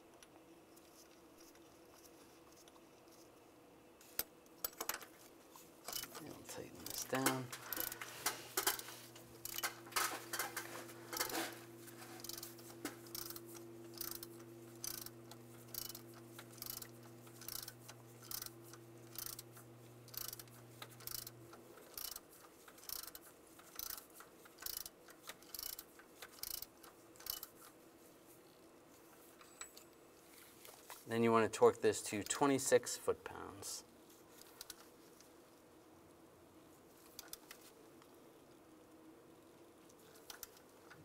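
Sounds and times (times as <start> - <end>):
hand ratchet clicking: 5.9 - 6.2, 6.8 - 11.5, 12.2 - 27.6.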